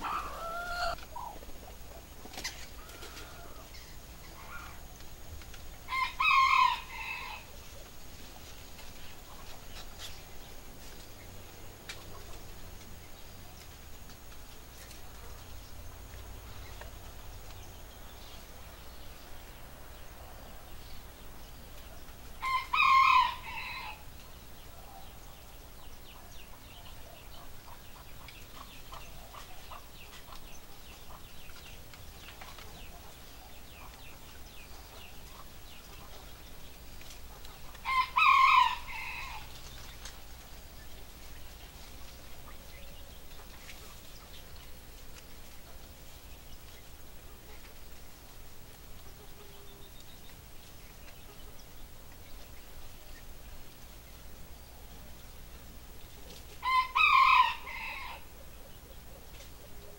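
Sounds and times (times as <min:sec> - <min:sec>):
rooster crowing: 0:00.0 - 0:01.0, 0:05.9 - 0:07.5, 0:22.4 - 0:24.0, 0:37.8 - 0:39.5, 0:56.6 - 0:58.3
faint bird chirps: 0:00.0 - 0:05.1.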